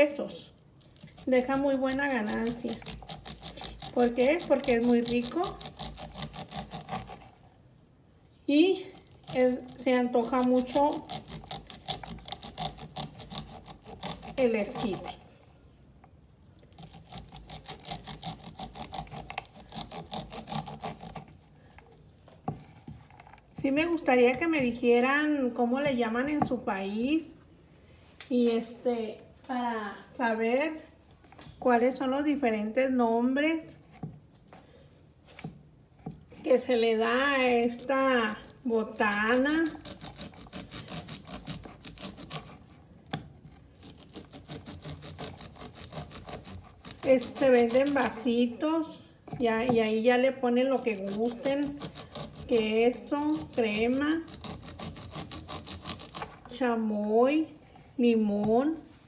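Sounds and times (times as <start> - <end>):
knife scraping corn kernels: 0.1 - 7.4, 8.8 - 15.3, 16.7 - 21.4, 36.4 - 42.8, 43.5 - 48.4, 50.6 - 56.6.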